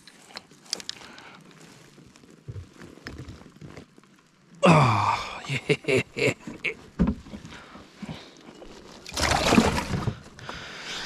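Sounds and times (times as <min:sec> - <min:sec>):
person saying oh: 0:04.6 - 0:05.7
knocks and clicks in a kayak: 0:06.4 - 0:07.6.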